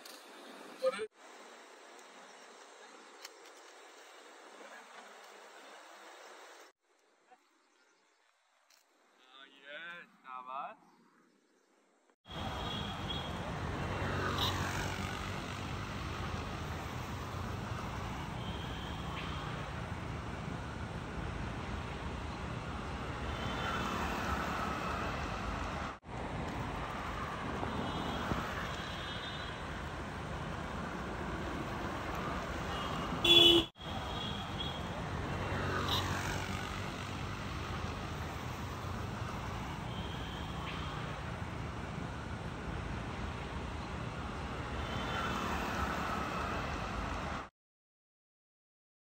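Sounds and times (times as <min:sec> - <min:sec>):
road traffic noise: 0:12.2 - 0:47.5
vehicles passing: 0:12.3 - 0:47.5.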